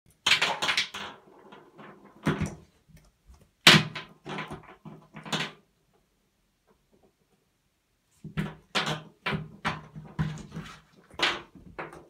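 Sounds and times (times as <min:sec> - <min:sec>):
plastic bottles knocking in bathtub: 0:00.1 - 0:02.7, 0:03.6 - 0:05.6, 0:08.2 - 0:12.0.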